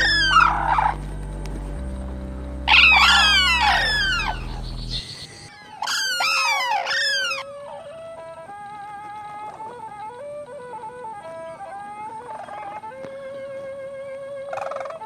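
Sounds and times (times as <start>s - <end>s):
low steady drone: 0.0s - 5.8s
cranes trumpeting: 0.0s - 15.0s.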